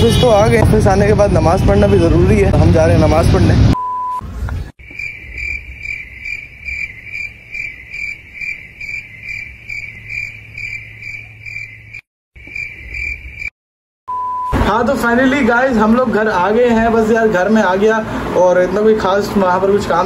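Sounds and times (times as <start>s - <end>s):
cricket chirping: 4.8s - 13.5s.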